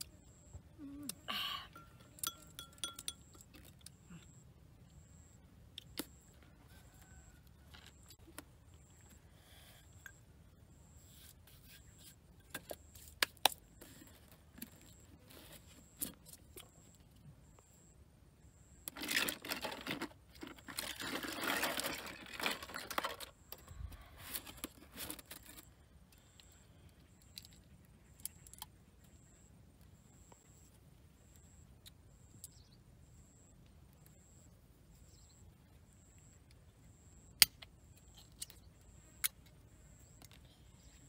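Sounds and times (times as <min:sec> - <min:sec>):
plastic rustling and crinkling: 0:18.9 - 0:25.7.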